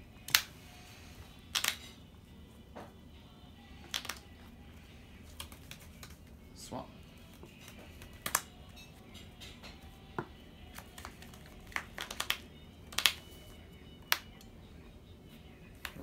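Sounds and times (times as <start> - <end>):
cards clicking and slapping: 0.2 - 0.5, 1.5 - 1.9, 3.9 - 4.3, 5.2 - 6.3, 7.3 - 8.6, 10.7 - 13.3, 15.8 - 16.0.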